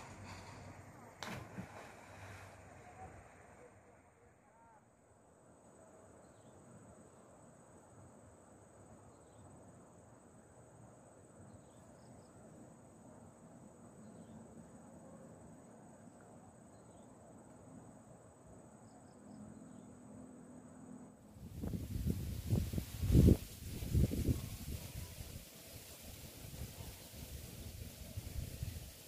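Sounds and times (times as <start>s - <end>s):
cricket chirps: 0.0s - 29.0s
crickets droning: 0.0s - 29.0s.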